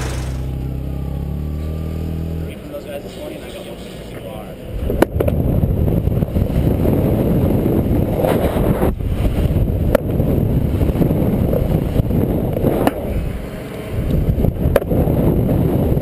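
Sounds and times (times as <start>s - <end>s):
sharp knock: 0.0s - 0.5s
skateboard wheels rumbling: 0.0s - 0.7s, 4.6s - 16.0s
wind on microphone: 4.7s - 16.0s.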